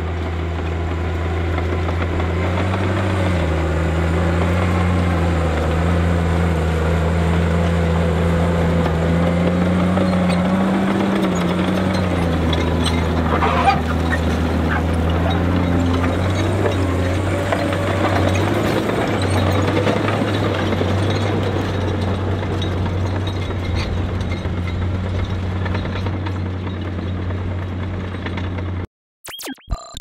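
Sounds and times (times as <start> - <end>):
diesel engine droning: 0.0 - 28.9
steel tracks clattering on gravel: 9.6 - 28.8.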